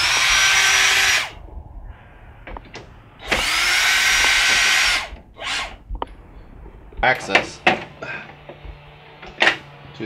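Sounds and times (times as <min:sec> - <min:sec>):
cordless drill whirring: 0:00.0 - 0:01.4, 0:03.2 - 0:05.8.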